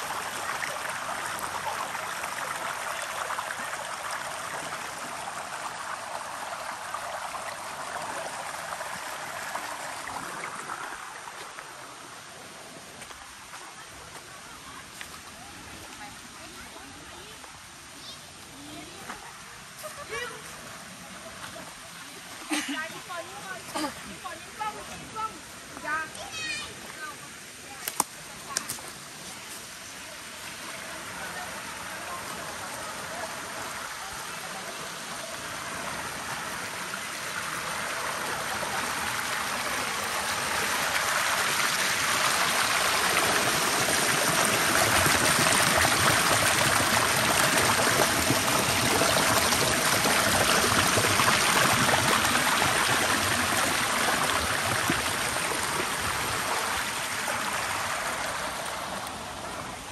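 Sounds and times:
waterfall rushing water: 0:29.3 - 0:59.9.

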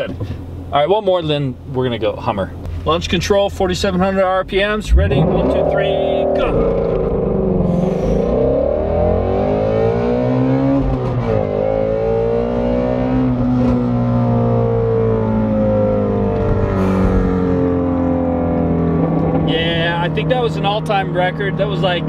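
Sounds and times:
car engine revving at full throttle: 0:04.8 - 0:22.0.

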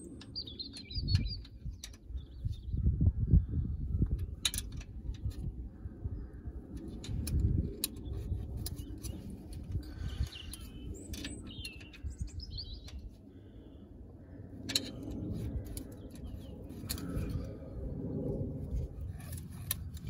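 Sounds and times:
small birds chirping: 0:00.0 - 0:04.6, 0:05.2 - 0:17.8
low rumble: 0:01.4 - 0:20.0
hand tools tapping on metal: 0:14.6 - 0:17.4.

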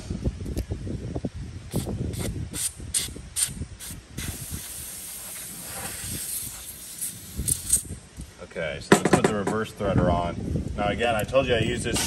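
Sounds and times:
aerosol can spraying: 0:01.7 - 0:07.9.

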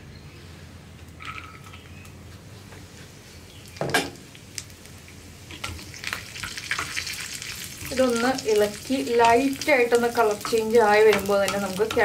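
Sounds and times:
ghee sizzling and crackling: 0:03.2 - 0:12.0.

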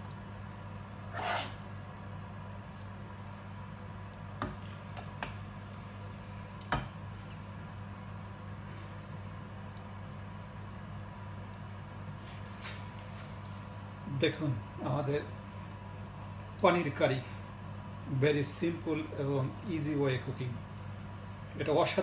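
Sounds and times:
steady low hum: 0:00.0 - 0:22.0
spoon scraping curry: 0:01.1 - 0:01.6.

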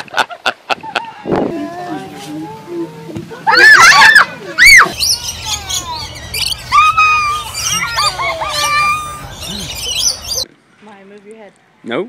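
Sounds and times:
parrots squawking and whistling: 0:03.5 - 0:10.4.

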